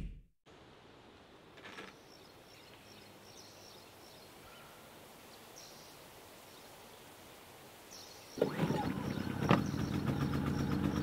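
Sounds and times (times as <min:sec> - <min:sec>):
steady low hiss: 0:00.5 - 0:08.4.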